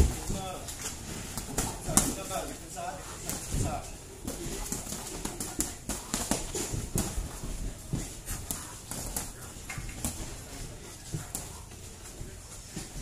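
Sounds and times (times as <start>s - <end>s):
feet shuffling on canvas: 0.0s - 13.0s
boxing gloves landing punches: 3.2s - 10.3s.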